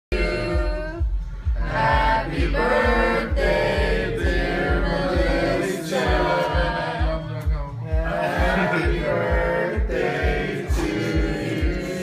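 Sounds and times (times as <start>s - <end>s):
person singing: 0.1s - 1.2s
steady bass beat: 0.1s - 12.0s.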